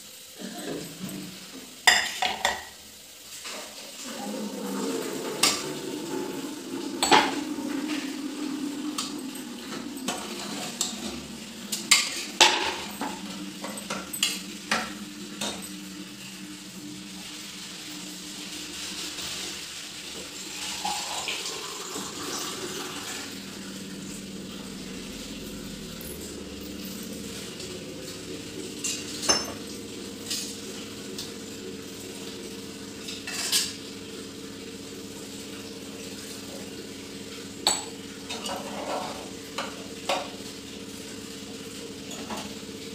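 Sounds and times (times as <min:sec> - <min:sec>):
metal utensils and pots clinking: 0:00.5 - 0:02.8, 0:08.8 - 0:16.7, 0:17.6 - 0:31.4, 0:33.0 - 0:33.8, 0:37.6 - 0:40.4, 0:42.0 - 0:42.6
steady low hum: 0:20.2 - 0:38.3.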